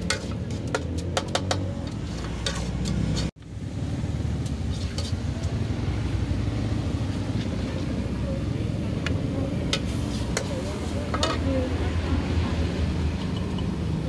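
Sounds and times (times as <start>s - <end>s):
metal spatula scraping a wok: 0.0s - 3.3s, 4.6s - 5.3s, 9.5s - 11.7s
street traffic rumble: 0.0s - 14.0s.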